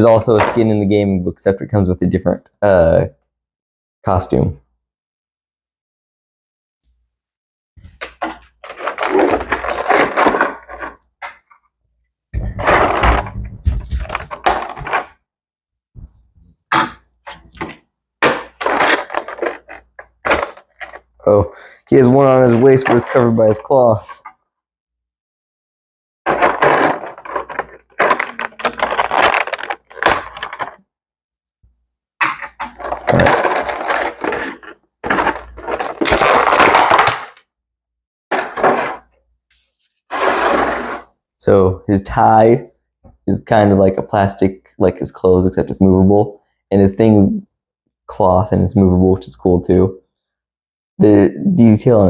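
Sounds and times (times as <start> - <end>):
plastic blister tray crackling: 8.1 - 11.4, 17.5 - 21.1, 26.3 - 30.8, 32.2 - 37.4
plastic packaging crinkling: 8.2 - 11.0, 18.5 - 21.1, 26.3 - 30.8, 32.6 - 37.4.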